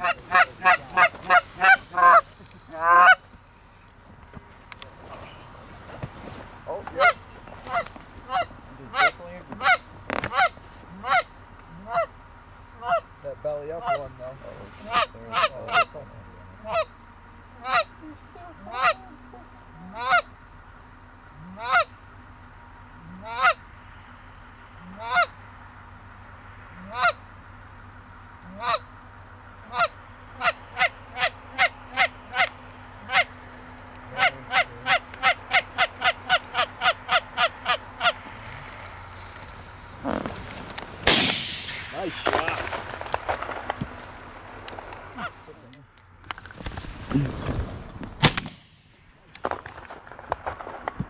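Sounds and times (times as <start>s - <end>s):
goose honking: 0.0s - 3.3s, 6.7s - 12.2s, 12.8s - 17.0s, 17.6s - 20.4s, 21.3s - 22.1s, 22.9s - 25.5s, 26.7s - 27.4s, 28.3s - 29.0s, 29.6s - 40.5s, 45.0s - 45.5s
shotgun blast: 41.0s - 43.9s, 48.2s - 51.0s.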